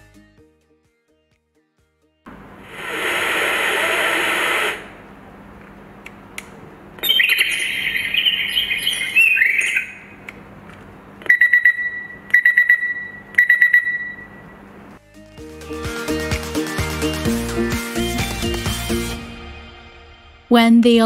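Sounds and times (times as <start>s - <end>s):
bird-chirping alarm tone: 7.0s - 10.2s, 11.2s - 14.7s
rapid alarm beeps: 11.2s - 14.5s.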